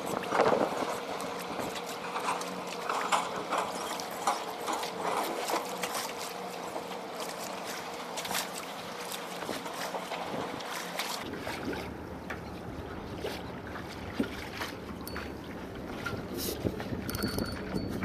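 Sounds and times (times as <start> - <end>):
water slapping against kayak hull: 4.5 - 17.1.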